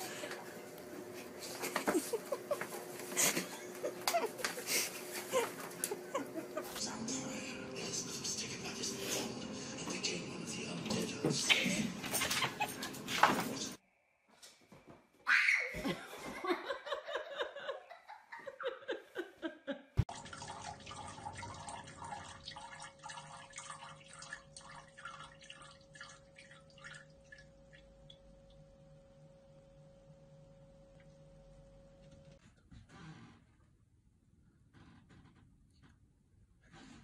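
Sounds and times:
toilet flushing water rushing: 20.0s - 27.5s.

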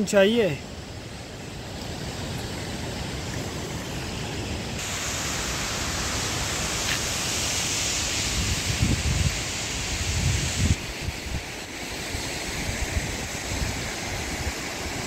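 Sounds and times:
waterfall rushing: 1.0s - 15.0s
wind buffeting microphone: 8.2s - 11.5s.

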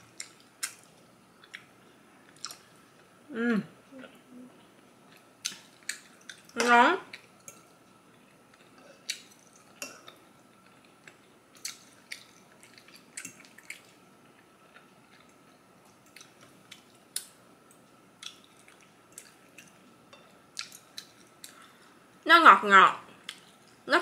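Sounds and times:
person chewing wetly: 5.1s - 14.0s, 14.6s - 19.9s.

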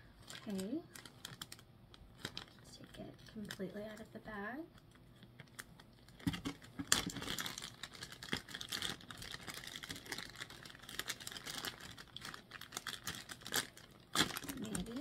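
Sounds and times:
plastic bag crinkling: 0.1s - 15.0s.

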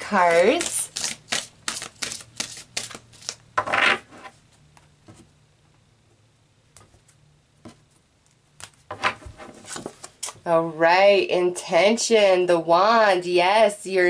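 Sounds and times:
cards being shuffled: 0.1s - 3.9s, 6.8s - 10.4s.

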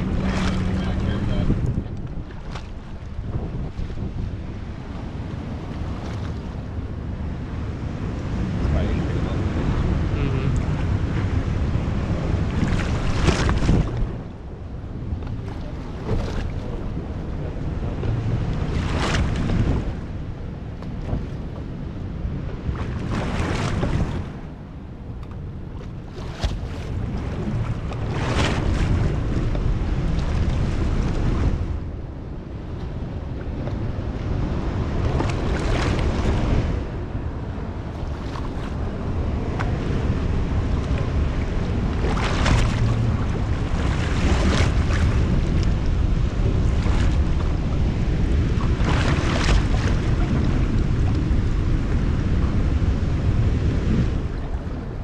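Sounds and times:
water splash: 0.0s - 3.0s, 41.8s - 47.8s, 48.5s - 52.5s
water sloshing: 0.0s - 6.9s, 25.6s - 31.6s, 37.6s - 52.8s
wind buffeting microphone: 0.0s - 55.0s.

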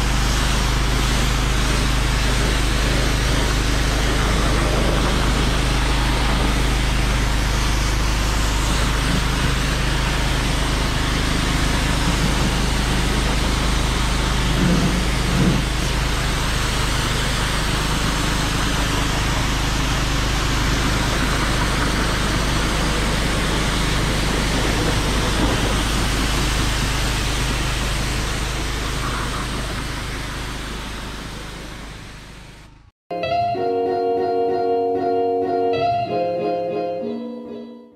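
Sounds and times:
pressure washer jet hissing: 0.0s - 32.8s
generator humming: 0.0s - 37.6s
guitar music: 33.1s - 37.9s.

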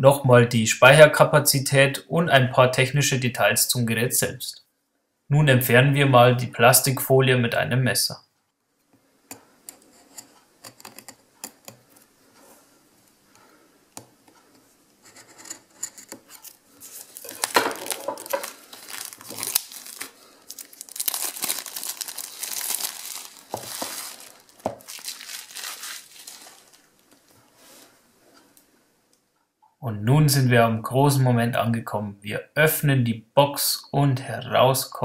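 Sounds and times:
plastic wrap tearing and crinkling: 16.8s - 27.3s.

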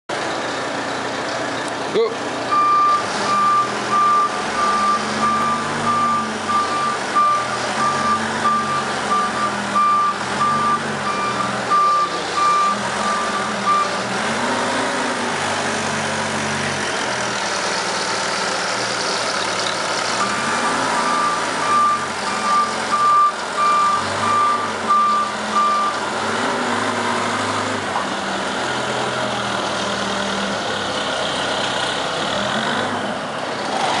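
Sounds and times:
diesel engine revving: 0.1s - 34.0s
reversing alarm beeping: 2.5s - 14.0s, 20.2s - 26.0s.

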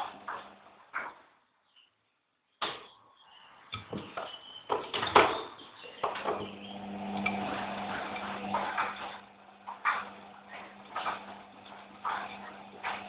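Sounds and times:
washing machine running: 0.0s - 1.2s, 3.8s - 13.0s
steady low hum: 5.7s - 13.0s
sharp knocks and bumps: 7.5s - 13.0s.

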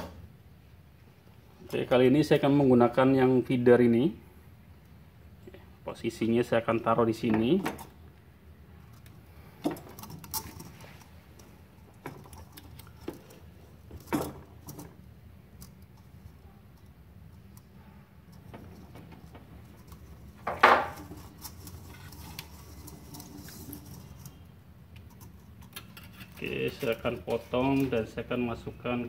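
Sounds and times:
small clicks and knocks of wire spool: 20.9s - 28.0s.

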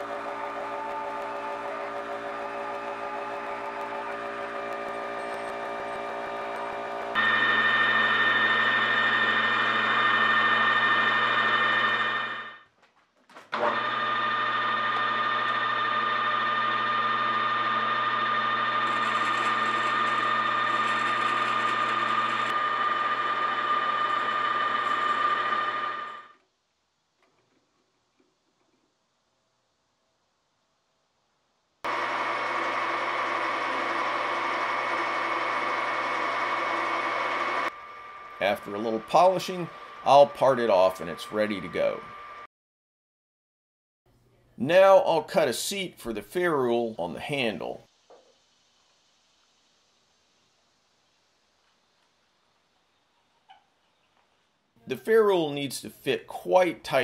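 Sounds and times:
metal lathe whining: 0.0s - 12.6s, 13.6s - 26.4s, 31.9s - 42.5s.

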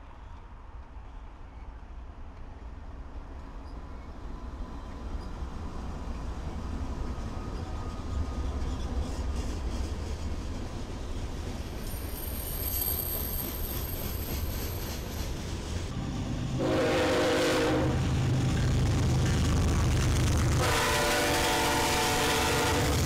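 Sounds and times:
diesel locomotives rumbling past: 0.0s - 23.0s
locomotive engine drone: 15.9s - 23.0s
locomotive air horn blast: 16.6s - 18.0s, 20.6s - 23.0s.

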